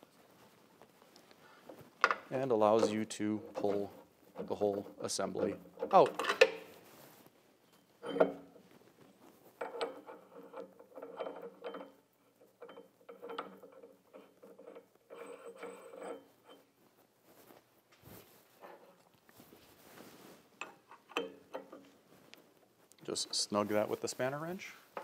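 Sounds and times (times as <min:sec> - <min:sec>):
metal parts scraping and rattling: 0:09.5 - 0:16.7.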